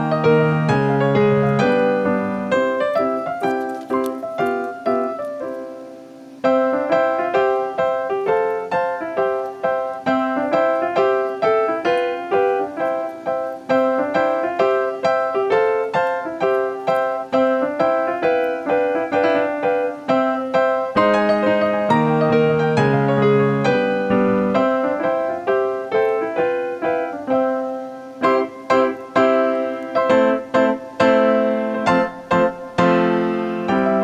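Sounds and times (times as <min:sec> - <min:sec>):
instrumental music with bouncy beat: 0:00.0 - 0:27.5.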